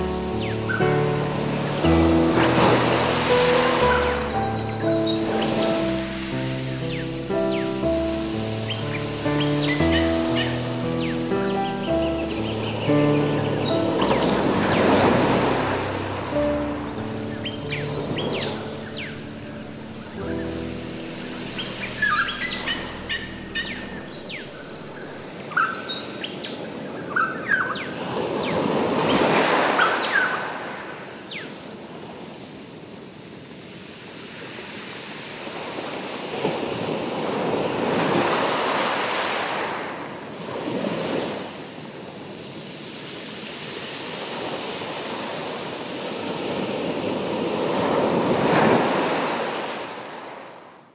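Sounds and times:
ocean surf washing in: 0:00.0 - 0:26.8, 0:32.0 - 0:50.7.

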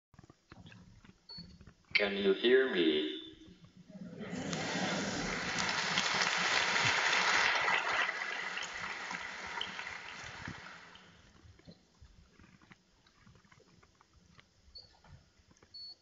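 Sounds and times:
audience applauding: 0:04.2 - 0:11.2.

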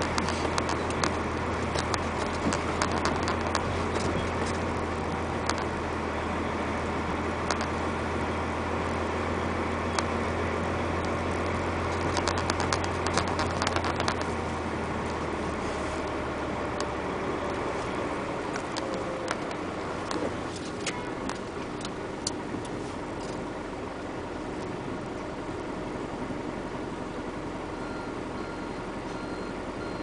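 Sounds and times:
rapid sharp clicks and ticks: 0:00.0 - 0:04.1, 0:05.4 - 0:05.7, 0:07.5 - 0:07.7, 0:11.4 - 0:14.4
tires rolling on gravel: 0:00.0 - 0:27.4
truck engine droning: 0:00.0 - 0:30.0.

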